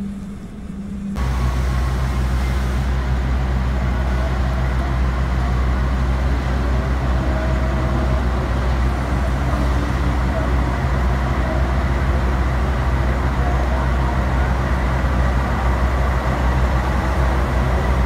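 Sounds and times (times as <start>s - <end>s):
diesel train engine droning: 0.0s - 18.0s
rain hiss: 1.2s - 4.2s.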